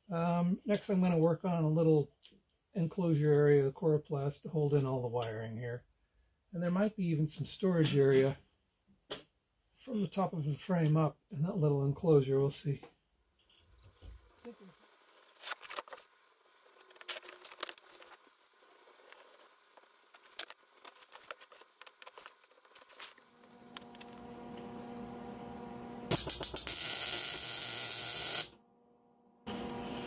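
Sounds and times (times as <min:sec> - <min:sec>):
welding arc hiss: 0:26.1 - 0:28.6.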